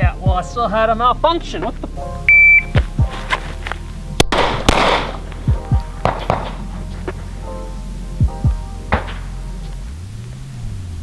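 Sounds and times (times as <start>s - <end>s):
music with bass beat: 0.0s - 11.0s
pistol shots: 4.2s - 5.2s, 6.0s - 6.6s.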